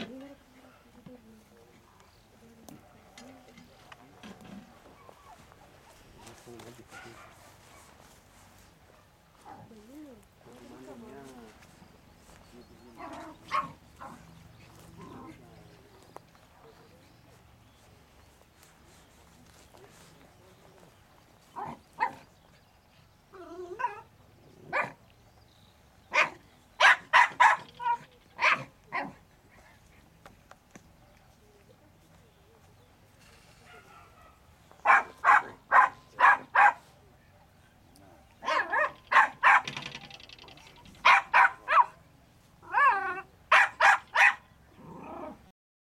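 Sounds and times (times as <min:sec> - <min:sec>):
dog barking: 0:06.9 - 0:08.0, 0:13.0 - 0:14.2, 0:21.6 - 0:22.3, 0:24.7 - 0:25.0, 0:26.1 - 0:29.2, 0:33.6 - 0:36.9, 0:38.4 - 0:39.8, 0:41.0 - 0:42.0, 0:42.7 - 0:44.4
dog wavering cry: 0:23.3 - 0:24.1, 0:42.6 - 0:44.4
dog yelping: 0:23.4 - 0:24.1, 0:24.7 - 0:25.0, 0:26.1 - 0:29.2, 0:33.7 - 0:36.8, 0:38.4 - 0:39.9, 0:41.0 - 0:42.0, 0:42.6 - 0:44.4.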